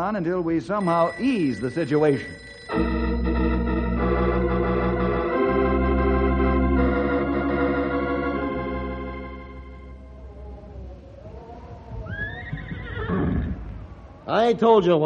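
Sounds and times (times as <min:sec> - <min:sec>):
organ chords: 0:00.0 - 0:10.5.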